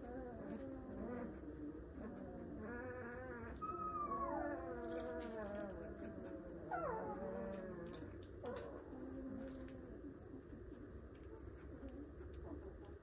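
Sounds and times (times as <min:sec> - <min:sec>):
puppy whimpering: 0:00.0 - 0:10.0.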